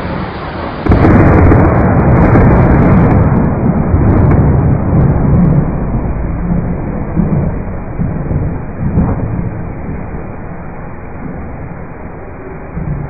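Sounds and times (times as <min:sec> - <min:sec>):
rain: 0:00.0 - 0:13.0
thunderclap rumbling: 0:00.0 - 0:13.0.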